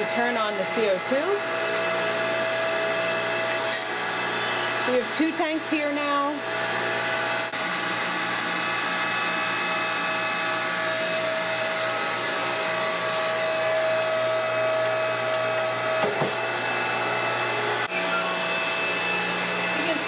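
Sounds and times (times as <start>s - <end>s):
compressor humming and whining: 0.0s - 20.0s.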